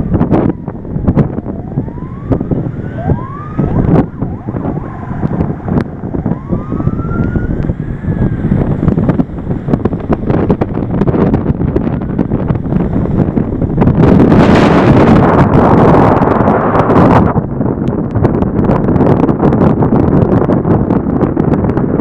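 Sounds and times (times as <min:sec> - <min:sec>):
siren wailing faintly: 0:00.0 - 0:09.7
road and wind noise: 0:00.0 - 0:22.0.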